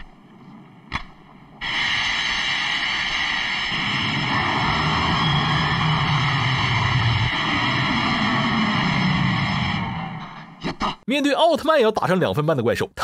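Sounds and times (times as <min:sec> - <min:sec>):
deep rumble: 0:01.4 - 0:10.9
ray gun hissing whine: 0:01.6 - 0:10.6.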